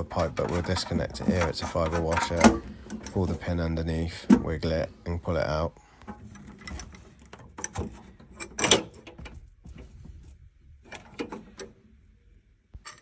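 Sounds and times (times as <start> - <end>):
metal pipe clack: 0.0 - 3.5
metallic clicks and knocks: 0.0 - 3.5, 6.0 - 9.4.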